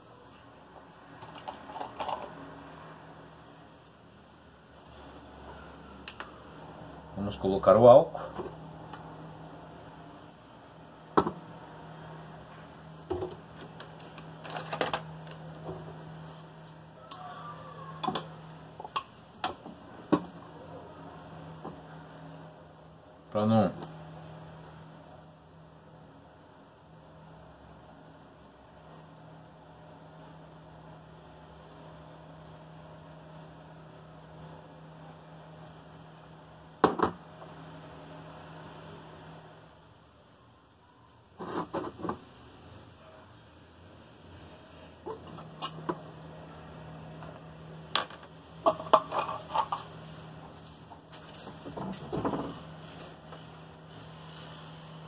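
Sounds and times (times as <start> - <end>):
faint steady hum: 0.0 - 55.0
can knocking on workbench: 11.2 - 11.4, 36.8 - 37.2.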